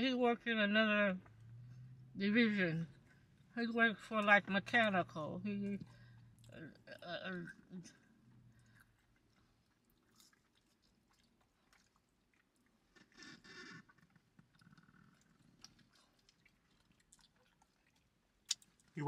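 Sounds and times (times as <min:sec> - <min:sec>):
chewing food: 0:05.8 - 0:19.0
wet mouth clicks and smacks: 0:13.9 - 0:18.9.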